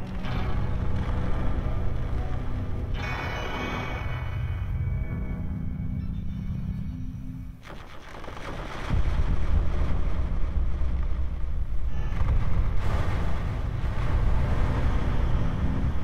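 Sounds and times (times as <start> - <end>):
noisy guitar drone: 0.0 - 7.6
deep low rumble: 8.9 - 16.0.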